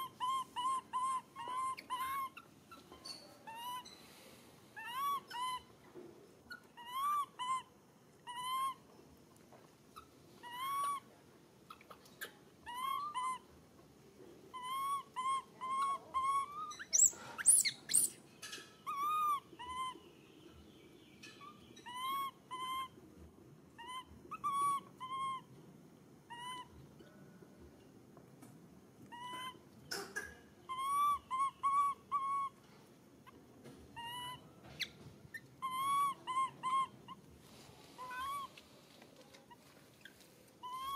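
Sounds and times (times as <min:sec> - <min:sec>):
infant monkey coo calls: 0:00.0 - 0:04.2, 0:04.8 - 0:05.8, 0:06.5 - 0:08.9, 0:10.0 - 0:13.6, 0:14.5 - 0:18.2, 0:18.8 - 0:20.1, 0:21.4 - 0:25.6, 0:26.2 - 0:27.2, 0:29.0 - 0:32.6, 0:33.2 - 0:38.6, 0:39.4 - 0:40.9
monkey high rising squeal: 0:38.0 - 0:38.5.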